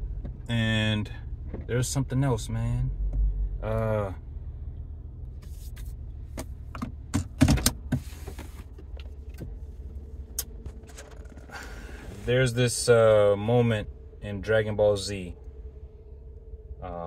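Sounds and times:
car cabin rumble: 0.0s - 17.0s.

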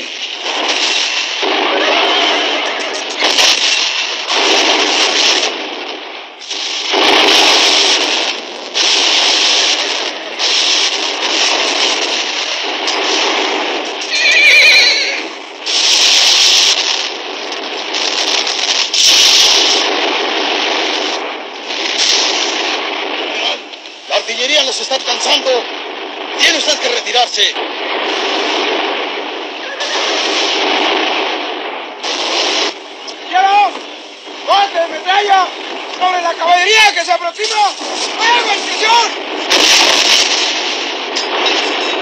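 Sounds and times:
cannon fire blasts: 0.0s - 42.0s
battle din: 1.4s - 3.7s
horses neighing: 14.0s - 15.3s.

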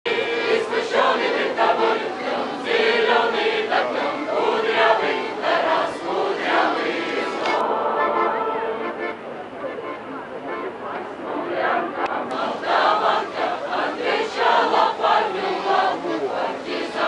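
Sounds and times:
mixed choir singing: 0.1s - 9.2s, 11.1s - 17.0s
accordion: 0.1s - 17.0s.

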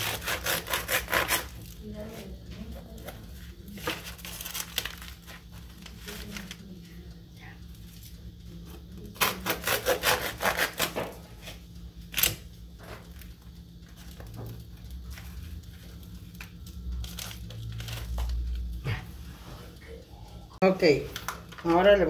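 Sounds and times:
knife sawing through bread: 0.0s - 1.6s, 9.2s - 11.0s.

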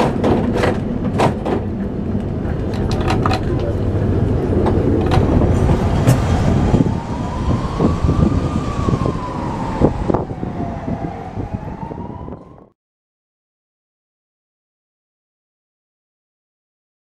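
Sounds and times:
tram rumbling on rails: 0.0s - 12.7s
whining tone: 0.0s - 12.7s.

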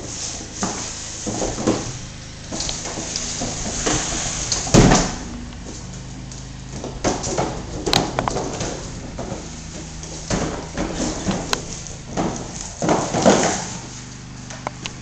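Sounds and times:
cardboard box scraping on wood floor: 0.0s - 6.1s, 6.7s - 14.4s
box knocks and thumps: 0.6s - 5.3s, 6.7s - 13.9s.

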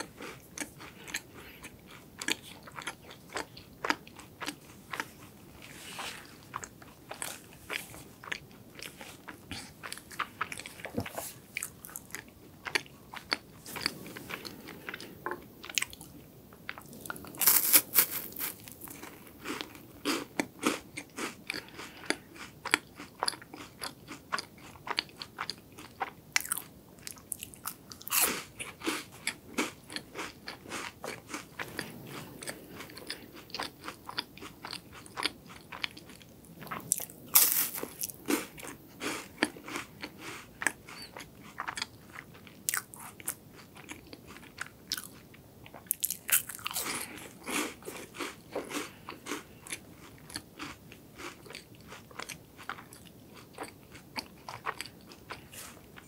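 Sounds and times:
crunchy wafers being chewed: 0.0s - 56.0s.

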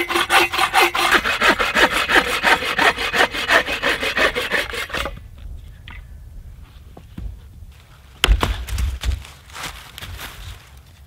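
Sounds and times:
hand saw cutting log: 0.0s - 5.2s.

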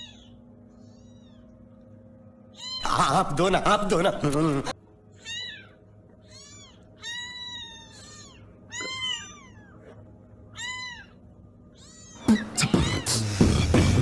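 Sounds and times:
kittens mewing: 0.0s - 1.6s, 2.5s - 3.2s, 5.1s - 13.7s
loud music: 12.4s - 14.0s.

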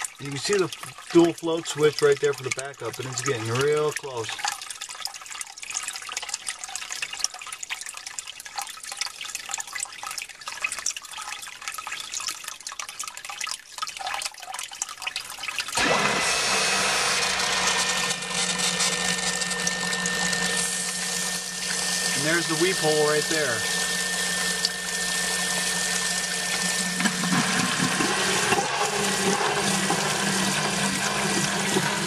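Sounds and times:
water pouring and splashing: 0.0s - 32.0s
sump pump humming and whining: 0.2s - 4.5s, 15.8s - 32.0s.

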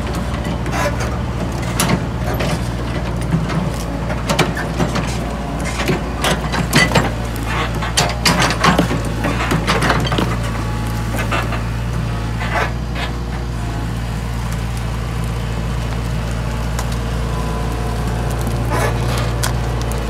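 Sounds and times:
diesel engine running: 0.0s - 20.0s
track chains clanking: 0.3s - 10.5s.

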